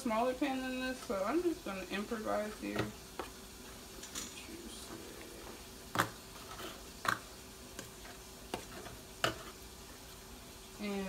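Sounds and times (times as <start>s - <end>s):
fork scraping foil pan: 6.3s - 7.2s.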